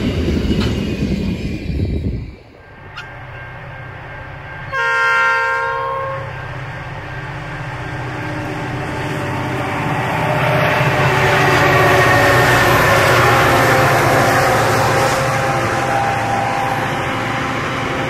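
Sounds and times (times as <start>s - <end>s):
diesel locomotive rumble: 0.0s - 18.0s
train horn blast: 4.7s - 6.4s, 11.2s - 17.2s.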